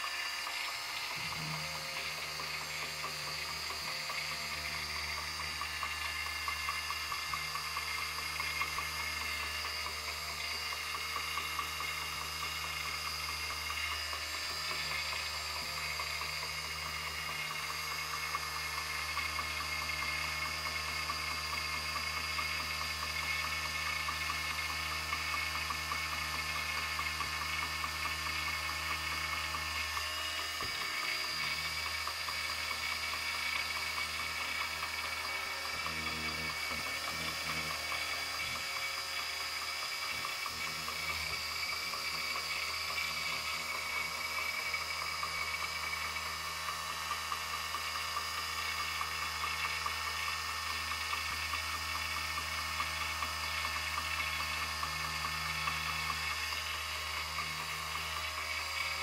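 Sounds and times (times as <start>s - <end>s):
electric motor whirring whine: 0.0s - 59.0s.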